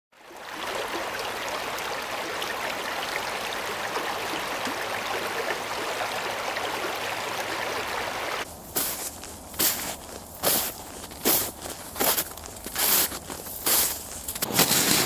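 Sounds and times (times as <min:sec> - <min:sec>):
stream rushing over rocks: 0:00.2 - 0:08.5.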